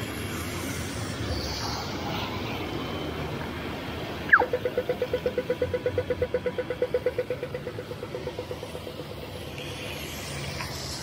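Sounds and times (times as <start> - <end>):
low traffic rumble: 0.0 - 11.0
crossing signal ticking rapidly: 4.0 - 11.0.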